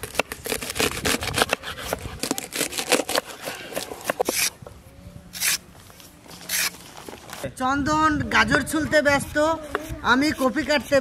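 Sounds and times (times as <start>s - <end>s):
knife scraping a carrot: 0.0s - 4.6s, 5.3s - 5.6s, 6.4s - 6.8s, 9.7s - 11.0s.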